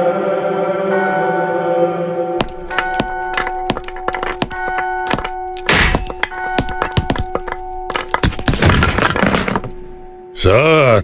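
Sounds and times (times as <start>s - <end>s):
chains clinking and rattling: 2.4s - 10.1s.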